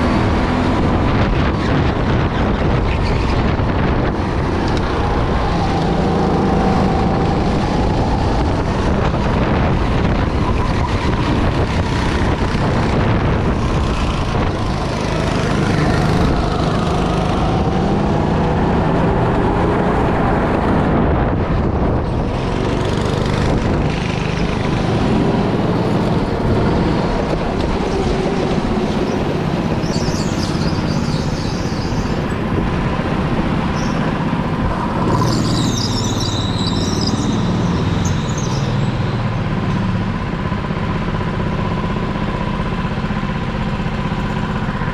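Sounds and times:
wind noise: 0.0s - 42.9s
go-kart engine running: 0.0s - 44.9s
high squeals: 35.1s - 39.1s.

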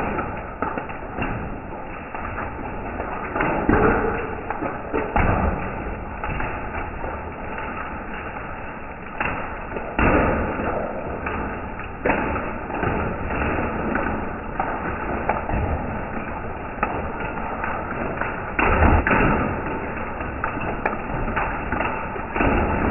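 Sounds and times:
hail falling on concrete: 0.0s - 22.9s.

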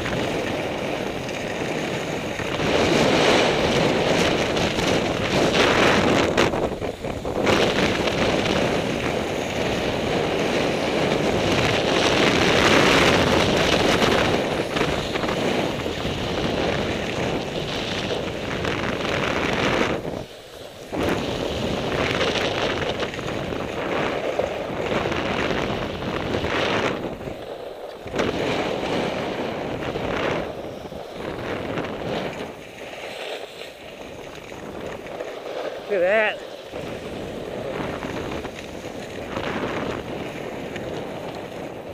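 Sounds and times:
wind buffeting microphone: 0.0s - 41.9s
skis hissing over snow: 18.3s - 22.0s, 30.3s - 41.8s.

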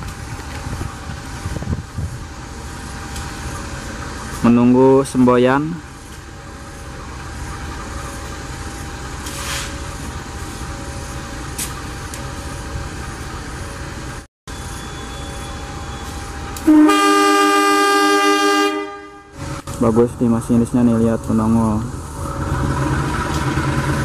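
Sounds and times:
locomotives idling hum: 0.0s - 17.6s
locomotive air horn blast: 16.6s - 19.4s.

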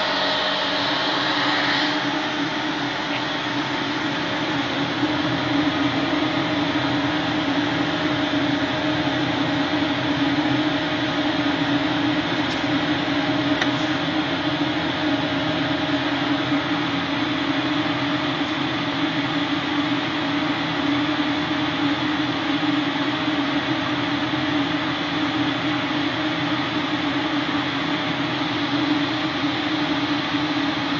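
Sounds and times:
fans humming with air rush: 0.0s - 30.9s.

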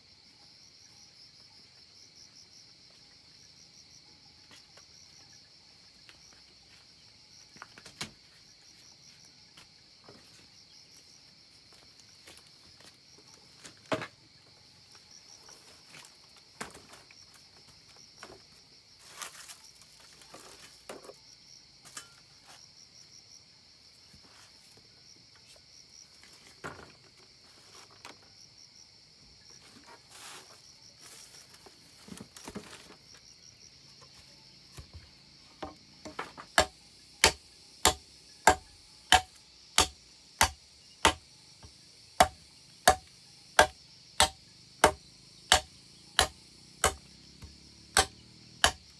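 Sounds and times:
insects chirring: 0.0s - 48.9s
stick beating bamboo: 35.6s - 41.2s, 42.2s - 47.1s, 48.0s - 48.9s.

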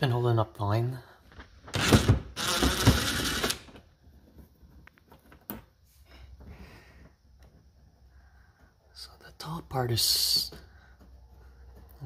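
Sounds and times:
cordless power driver running: 1.8s - 3.7s.

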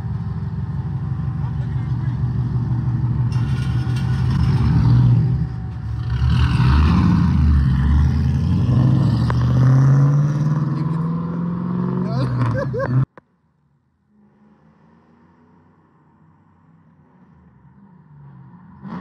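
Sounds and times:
car engine revving: 1.4s - 13.1s.

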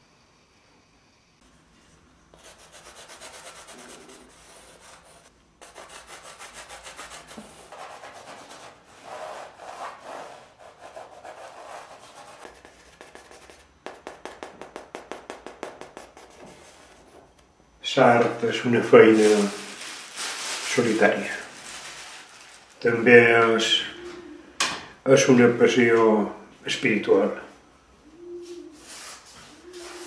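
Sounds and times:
charcoal scraping on canvas: 2.4s - 17.2s.

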